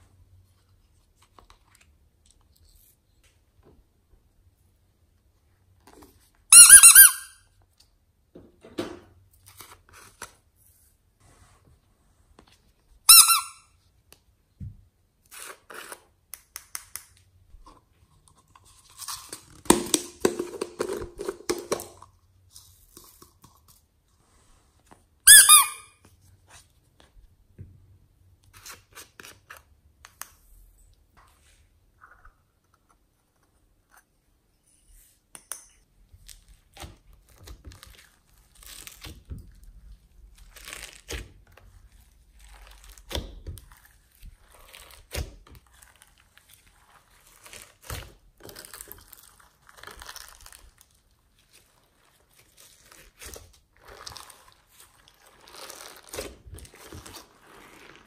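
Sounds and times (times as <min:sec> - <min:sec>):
short loud squeak: 0:25.3 - 0:25.9
slime crackling when folded: 0:36.2 - 0:58.0.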